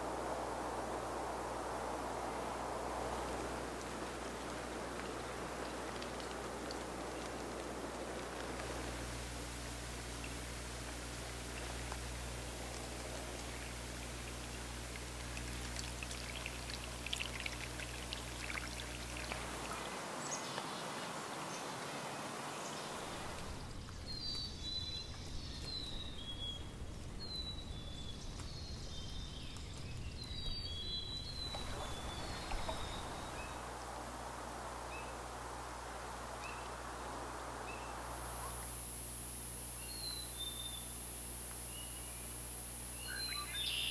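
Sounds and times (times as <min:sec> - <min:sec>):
water rushing: 0:00.0 - 0:27.1, 0:28.3 - 0:39.7
high falling bird chirps: 0:23.5 - 0:33.7, 0:42.9 - 0:43.9.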